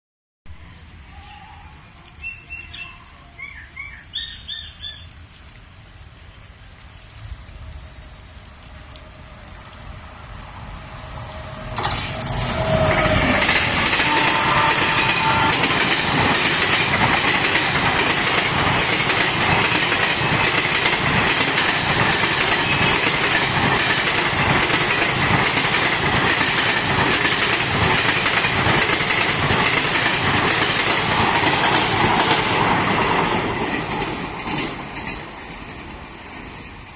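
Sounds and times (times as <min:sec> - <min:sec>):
train rushing past: 0:07.4 - 0:36.9
wheels clacking over rail joints: 0:10.4 - 0:36.9.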